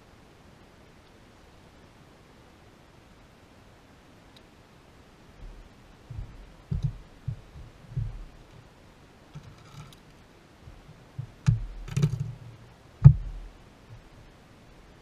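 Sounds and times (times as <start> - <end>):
footsteps on carpeted deck: 5.4 - 8.6
short clicking rattle: 11.5 - 12.4.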